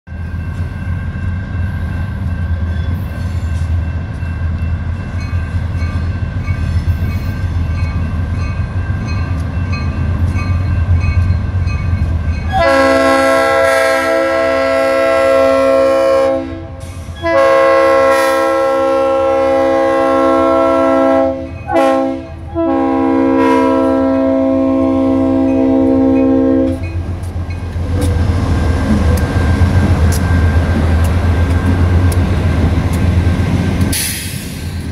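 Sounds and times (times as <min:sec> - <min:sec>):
locomotive air horn: 0:12.5 - 0:26.8
locomotive engine rumble: 0:23.8 - 0:34.9.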